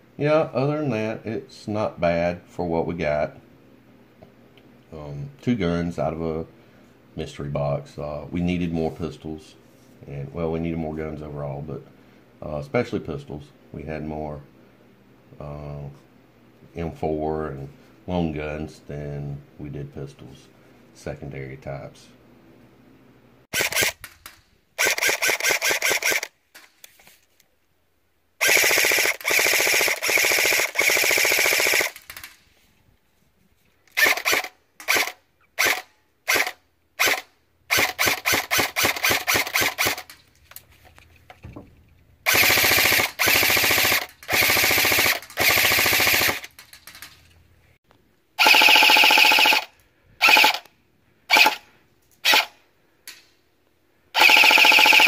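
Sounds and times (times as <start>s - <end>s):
airsoft rifle firing bursts: 23.5s - 26.3s, 28.4s - 32.4s, 34.0s - 40.1s, 42.3s - 47.0s, 48.4s - 50.6s, 51.3s - 51.6s, 52.2s - 52.5s, 54.2s - 55.0s.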